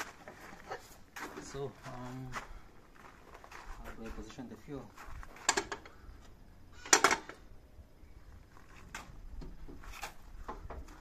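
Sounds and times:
parts knocking and clunking: 0:05.2 - 0:07.5, 0:08.8 - 0:11.0.

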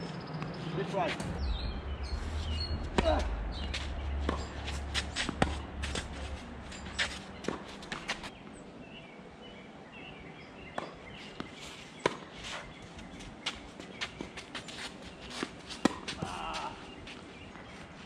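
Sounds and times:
ball bouncing: 0:01.2 - 0:06.2
racket hitting tennis ball: 0:02.2 - 0:08.3
shoe scuffs on court: 0:02.2 - 0:08.3, 0:11.2 - 0:17.3.

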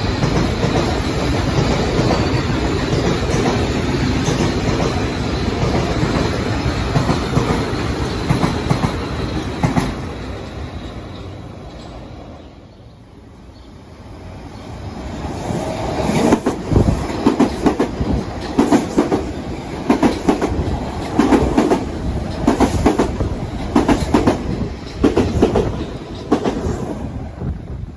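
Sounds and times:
train passing at speed: 0:00.0 - 0:27.9
wheels clicking over rail joints: 0:15.6 - 0:26.8.

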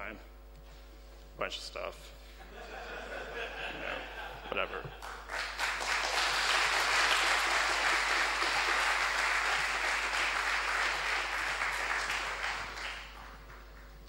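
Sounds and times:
audience applauding: 0:05.0 - 0:13.9.

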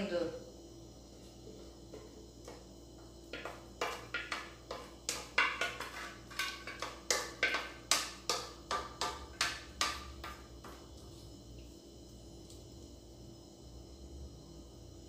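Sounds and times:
plastic spatula scraping saucepan: 0:03.4 - 0:07.6.

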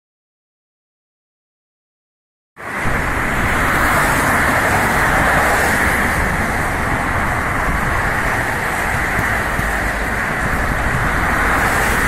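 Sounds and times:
cars passing on road: 0:02.6 - 0:12.0.

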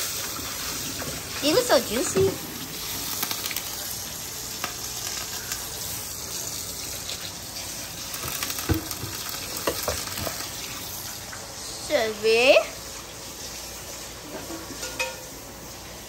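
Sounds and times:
tap water running into pot: 0:00.0 - 0:11.6, 0:12.6 - 0:16.0.

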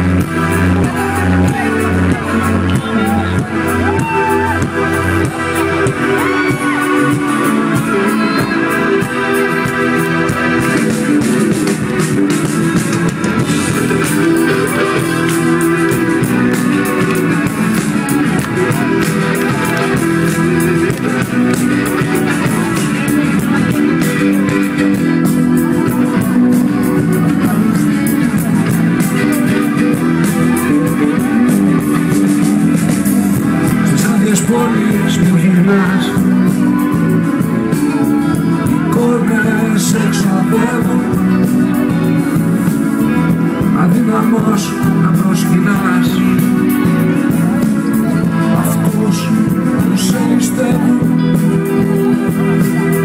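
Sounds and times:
live rock band playing: 0:00.0 - 0:53.0.

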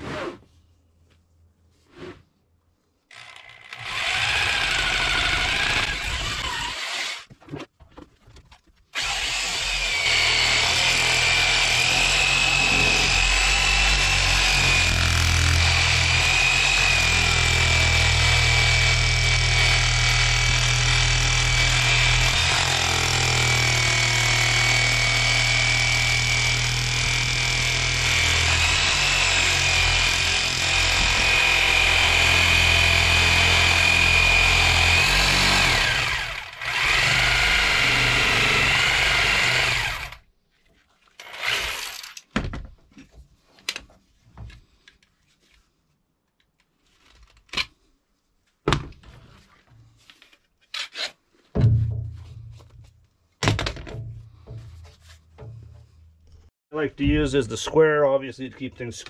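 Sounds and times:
jigsaw motor whining: 0:03.1 - 0:07.3, 0:09.0 - 0:40.2, 0:41.2 - 0:42.2.

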